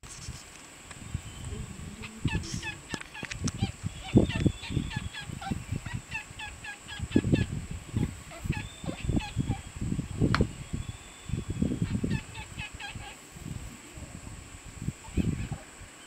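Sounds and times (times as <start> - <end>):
bird chick squeaky calls: 2.3 - 7.5, 8.3 - 9.7.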